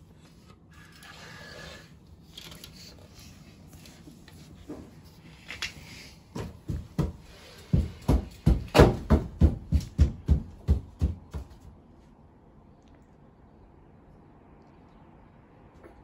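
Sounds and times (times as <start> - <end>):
footsteps on wooden deck: 6.2 - 11.7.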